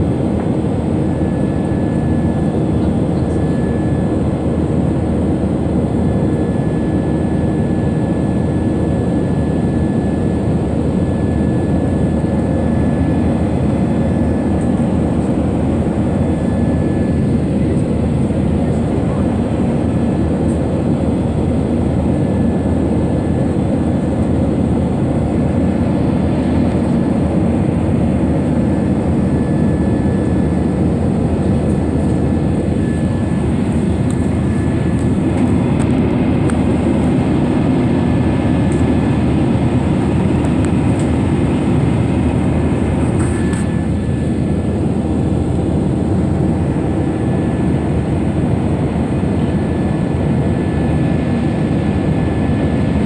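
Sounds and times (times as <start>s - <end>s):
jet engine cabin rumble: 0.0s - 53.0s
faint thin whine: 31.7s - 36.0s.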